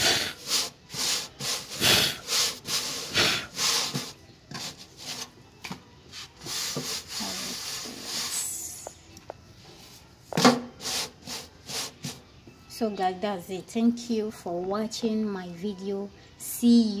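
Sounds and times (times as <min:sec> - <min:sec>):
hand rubbing flatbread on griddle: 0:06.1 - 0:08.4.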